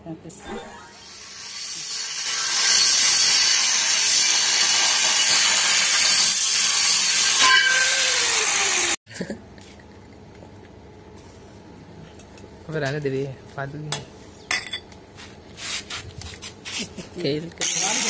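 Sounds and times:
angle grinder cutting metal: 0.4s - 9.0s, 17.6s - 18.0s.

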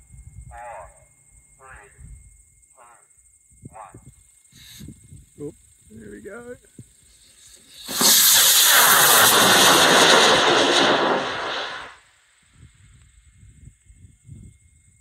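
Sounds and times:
rocket motor hissing roar: 7.1s - 12.0s.

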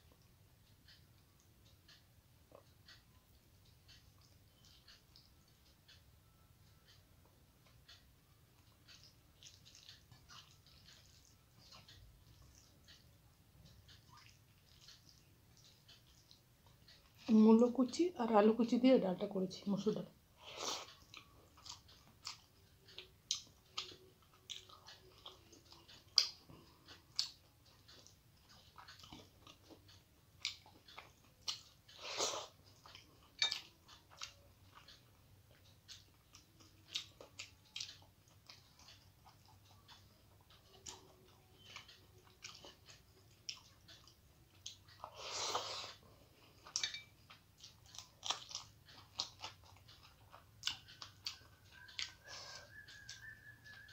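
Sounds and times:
wet chewing and mouth smacks: 0.0s - 6.1s, 6.9s - 17.3s, 20.4s - 53.9s.

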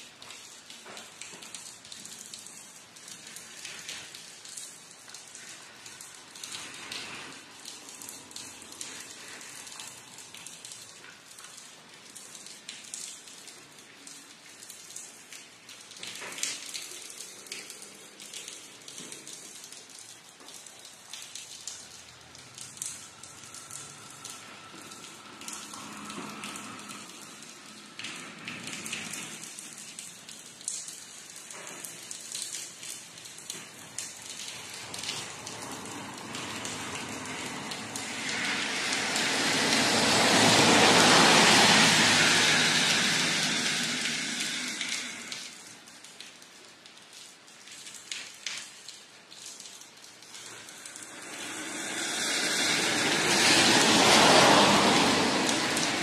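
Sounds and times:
drips and patters on surfaces: 0.0s - 56.0s
rain falling: 0.0s - 56.0s
loud hiss: 38.0s - 45.6s.

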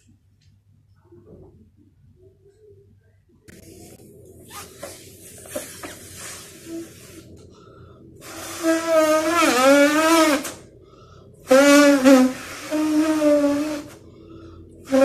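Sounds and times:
balloon rustling and clicking: 4.5s - 6.4s
breath blown into balloon: 4.5s - 7.4s, 8.2s - 10.6s, 11.4s - 14.0s.

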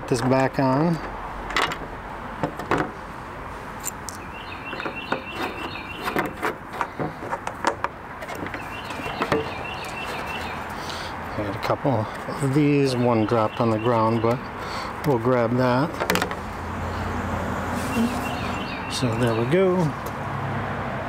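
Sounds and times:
bird chirping: 4.1s - 6.4s, 8.3s - 11.5s, 12.3s - 14.9s, 17.8s - 19.9s.

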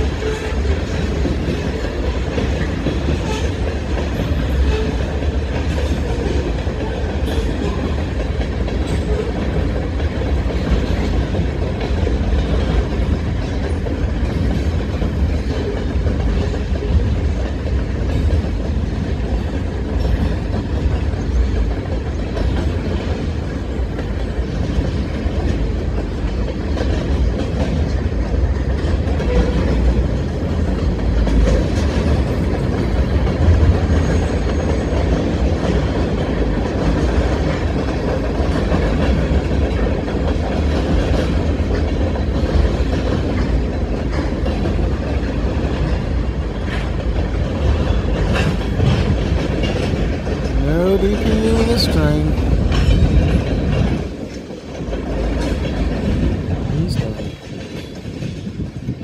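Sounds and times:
wheels clicking over rail joints: 0.0s - 50.7s, 52.4s - 59.0s
freight train rumbling past: 0.0s - 59.0s.

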